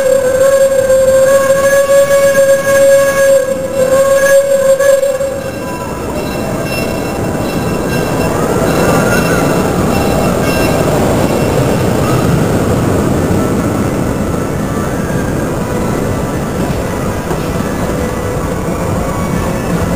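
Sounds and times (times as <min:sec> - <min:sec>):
steam locomotive whistle: 0:00.0 - 0:12.7
train rumble and rail noise: 0:00.0 - 0:19.9.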